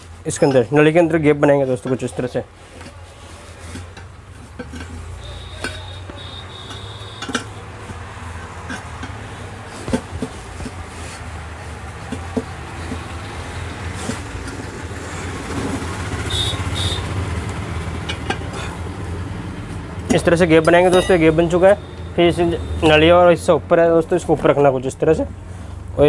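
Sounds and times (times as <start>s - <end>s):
tyre levers clinking on rim: 3.6s - 11.2s, 20.0s - 22.1s.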